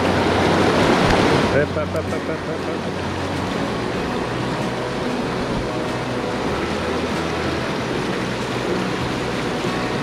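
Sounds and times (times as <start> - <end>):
fast-flowing river rushing: 0.0 - 10.0.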